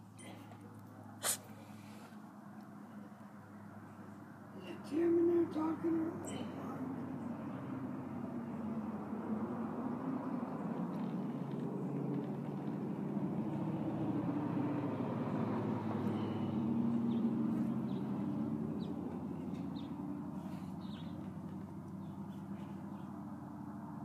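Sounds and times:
vehicle engine passing by: 0.0s - 24.0s.

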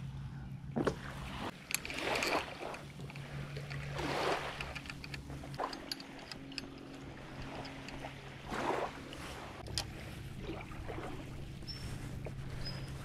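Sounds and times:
low steady hum: 0.0s - 13.0s
pole joint clicking: 1.6s - 8.1s, 9.6s - 9.9s.

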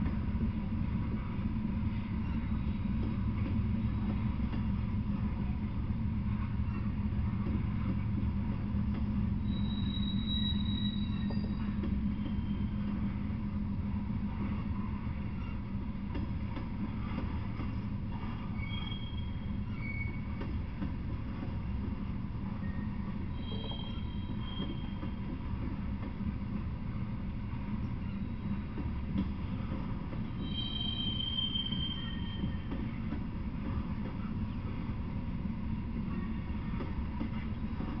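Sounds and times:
train wheels rumbling on rails: 0.0s - 38.0s
high-pitched wheel squeals: 9.4s - 13.0s, 18.4s - 20.3s, 22.7s - 25.2s, 30.4s - 32.8s.

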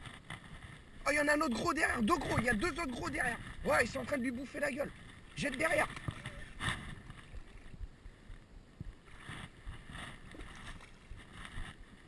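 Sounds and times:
water lapping: 0.0s - 8.3s, 9.0s - 12.0s
wind noise on microphone: 4.8s - 12.0s.

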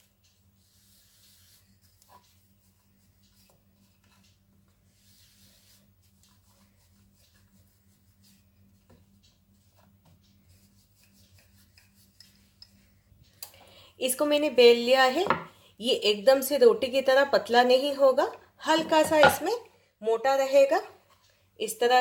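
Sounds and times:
rolling pin rolling dough: 0.0s - 12.7s, 17.8s - 19.5s.

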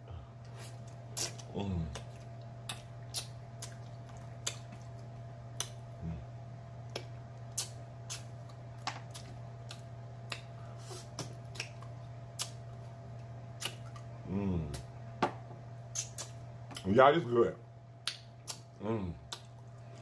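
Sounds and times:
steady low hum: 0.0s - 20.0s
close chewing with lip smacks: 0.8s - 5.8s, 6.8s - 10.5s, 11.2s - 12.6s, 13.6s - 14.1s, 18.0s - 20.0s.

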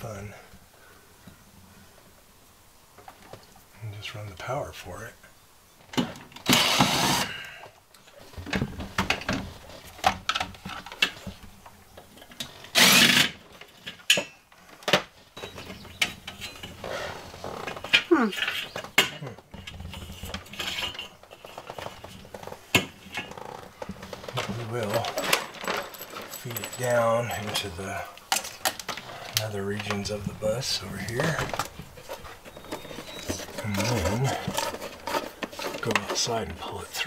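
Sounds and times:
cordless drill-driver bursts: 6.4s - 7.3s, 12.8s - 13.4s
tools and wiring clicking and rattling: 8.0s - 37.0s.

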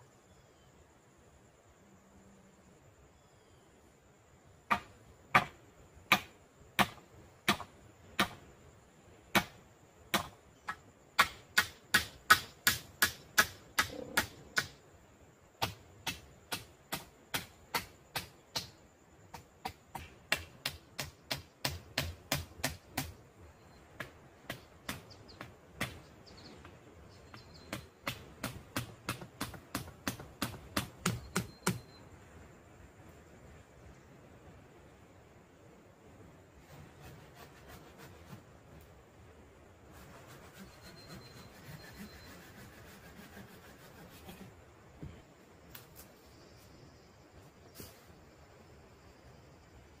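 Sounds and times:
hammering on wooden poles: 4.7s - 8.4s, 9.3s - 14.8s, 15.6s - 23.2s, 23.9s - 26.1s, 27.7s - 31.8s.

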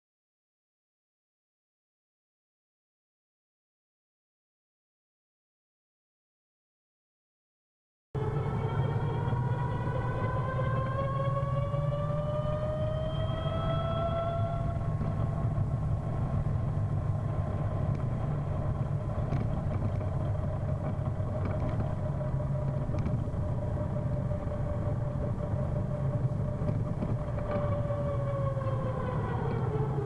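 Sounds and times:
electric scooter gear whine: 8.2s - 30.0s
low rumble: 8.2s - 30.0s.

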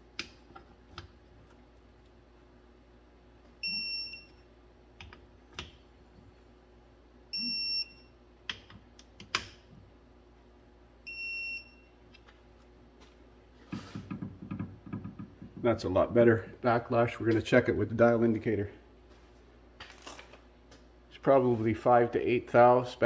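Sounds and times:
torque wrench beeping: 3.6s - 4.4s, 7.4s - 8.0s.

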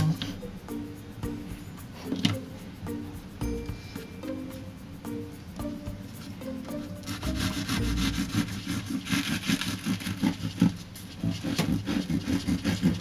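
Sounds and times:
bread knife sawing through loaf: 7.0s - 13.0s.

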